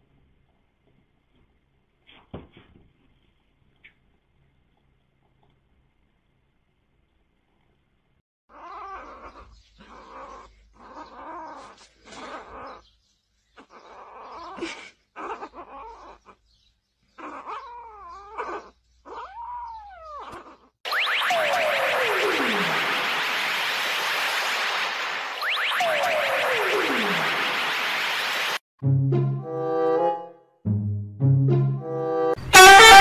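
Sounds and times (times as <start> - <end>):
kitten yowling: 8.5 - 12.8, 13.6 - 16.4, 17.2 - 20.7
falling sweep sound effect: 20.9 - 28.6.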